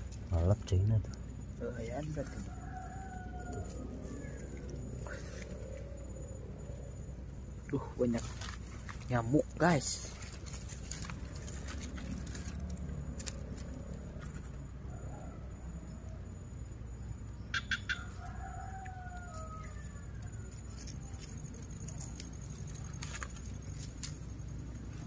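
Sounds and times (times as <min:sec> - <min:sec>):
low outdoor background: 0:00.0 - 0:25.0
distant rooster crowing: 0:01.9 - 0:06.8, 0:14.6 - 0:16.5, 0:17.5 - 0:21.2.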